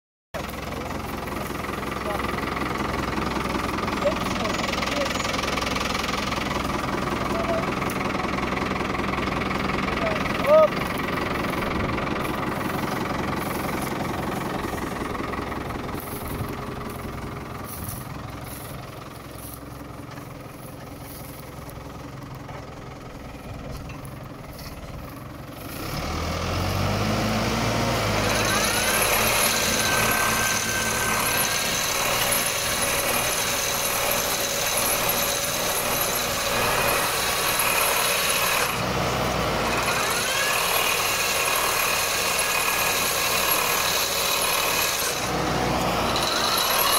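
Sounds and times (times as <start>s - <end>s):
engine running: 0.4s - 46.9s.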